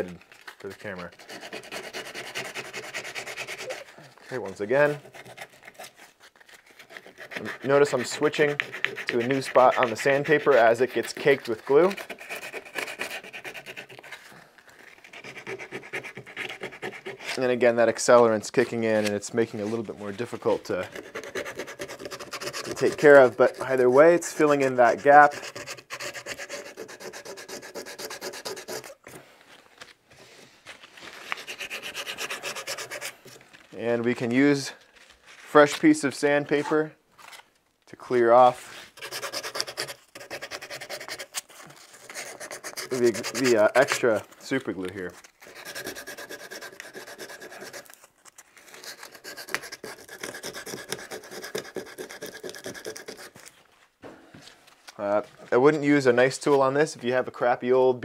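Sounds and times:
sandpaper rubbing on wood: 0.6 - 14.2, 15.0 - 17.9, 18.5 - 29.0, 31.1 - 33.3, 38.7 - 48.0, 48.7 - 53.4.

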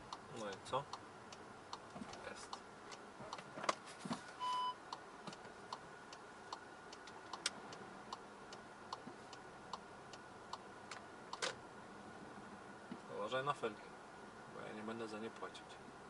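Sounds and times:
turn signal ticking: 0.0 - 3.8, 4.4 - 11.7
short electronic beep: 4.4 - 4.8.

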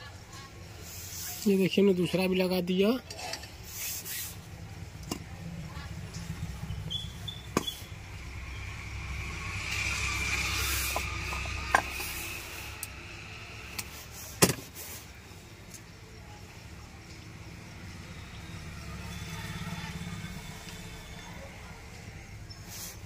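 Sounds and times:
hiss: 0.8 - 1.6, 3.6 - 4.6, 9.2 - 15.3, 22.6 - 23.0
low hum: 4.3 - 13.9.

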